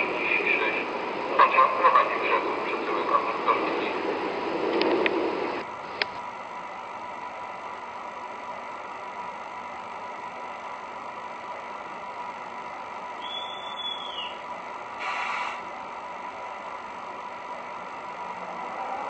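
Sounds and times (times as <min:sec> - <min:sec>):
model train rolling hum: 0:00.0 - 0:19.0
high-pitched whistle-like tone: 0:13.2 - 0:14.4.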